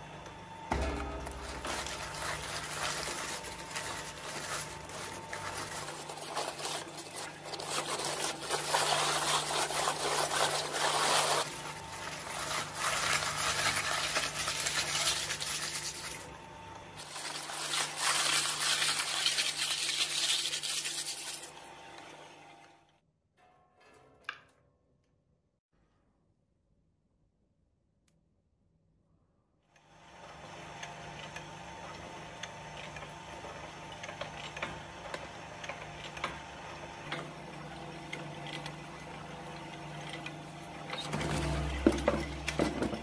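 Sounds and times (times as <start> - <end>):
steady motor hum: 0.0 - 22.7
shredder crunching cabbage: 0.8 - 22.6, 29.9 - 43.0.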